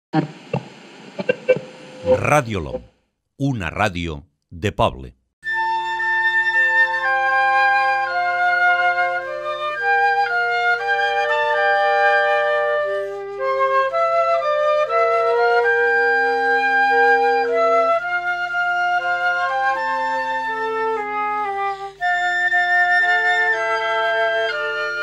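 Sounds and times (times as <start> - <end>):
flutes playing in harmony: 5.4 - 25.0.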